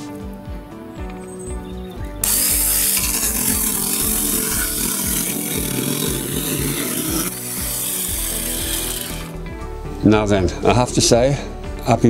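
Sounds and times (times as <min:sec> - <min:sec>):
mini chainsaw cutting wood: 0:02.2 - 0:09.4.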